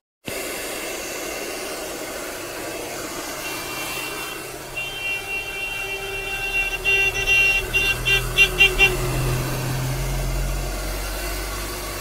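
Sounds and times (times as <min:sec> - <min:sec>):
hair dryer blowing: 0:00.2 - 0:12.0
high-pitched tone: 0:03.4 - 0:11.1.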